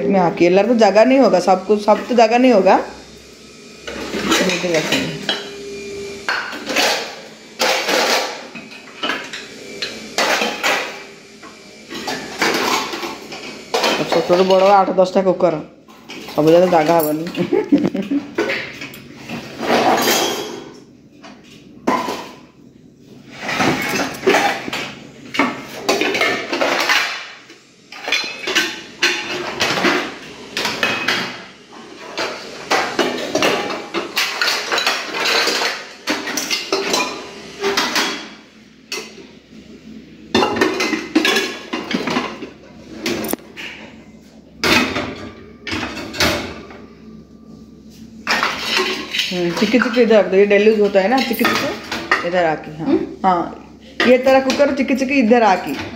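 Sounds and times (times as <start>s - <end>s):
metal cookware clanking: 23.3s - 31.4s, 32.1s - 39.3s, 40.3s - 43.9s, 48.2s - 53.0s.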